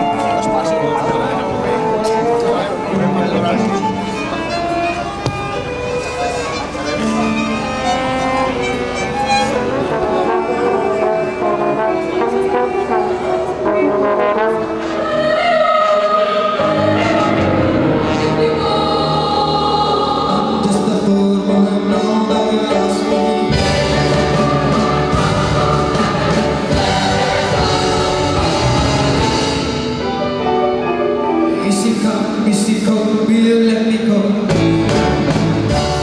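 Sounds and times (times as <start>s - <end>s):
orchestra accompanying: 0.0s - 36.0s
mixed choir singing: 9.2s - 30.1s.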